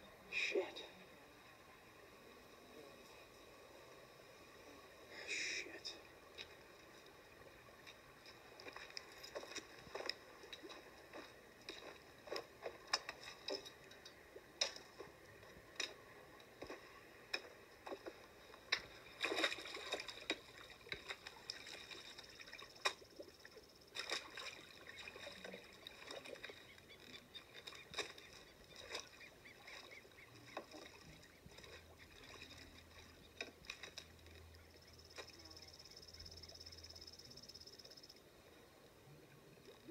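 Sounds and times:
water splashing and sloshing: 2.8 - 38.1.

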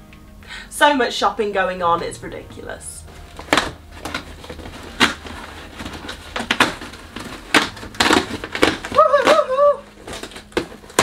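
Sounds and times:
cardboard flaps crackling: 3.1 - 11.0
packing tape ripping: 3.3 - 11.0.

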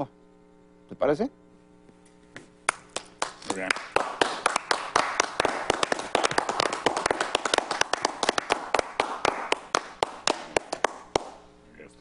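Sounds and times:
people clapping: 2.6 - 11.4.

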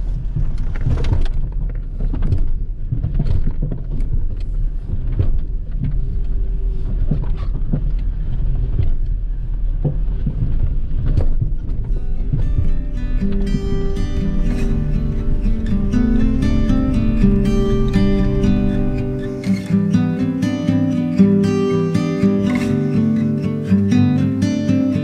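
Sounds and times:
vehicle knocks and rattles: 0.0 - 19.9
engine and tyres rumbling: 0.0 - 21.5
music: 11.4 - 25.0.

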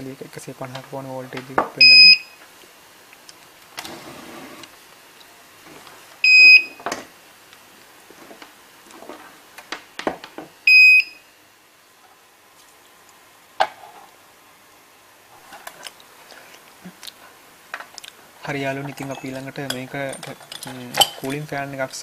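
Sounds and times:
high-pitched alarm beeps: 1.8 - 2.4, 6.2 - 6.8, 10.7 - 11.2
parts knocking and rustling: 18.8 - 21.5.

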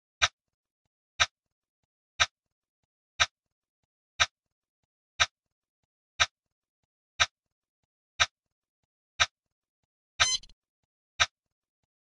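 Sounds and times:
timer ticking: 10.2 - 10.5.

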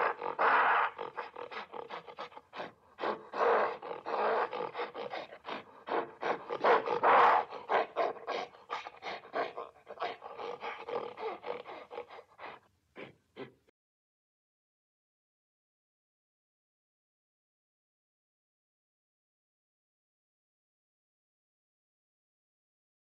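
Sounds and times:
gorilla roaring calls: 0.0 - 13.6
gorilla grunting and panting: 0.0 - 13.7.

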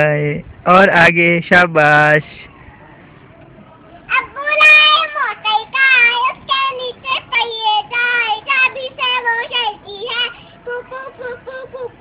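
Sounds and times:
girl singing: 4.1 - 12.0.

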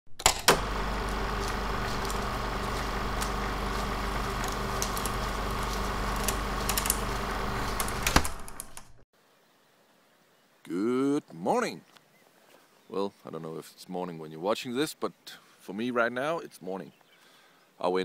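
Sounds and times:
film projector mechanical hum: 0.5 - 8.9.

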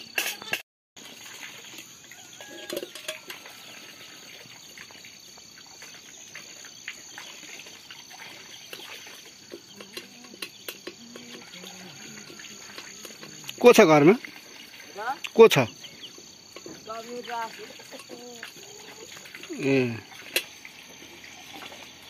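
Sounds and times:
insects chirring: 0.0 - 22.0
bird chirps: 13.5 - 20.2.

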